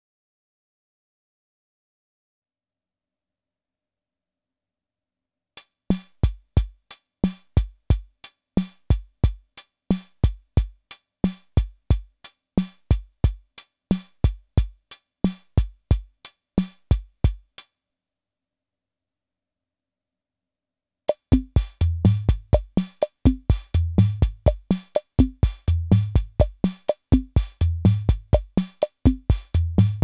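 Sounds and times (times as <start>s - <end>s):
low kick drums: 21.3s - 30.0s.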